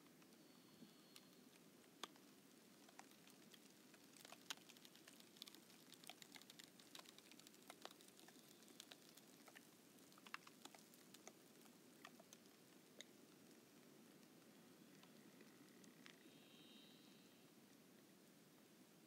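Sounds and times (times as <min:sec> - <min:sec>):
low steady hiss: 0:00.0 - 0:19.0
lake ice crackling: 0:02.7 - 0:13.1.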